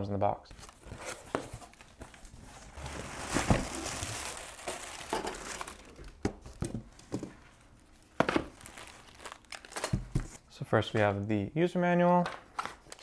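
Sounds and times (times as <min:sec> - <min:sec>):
cardboard and plastic rustling: 0:00.6 - 0:10.4.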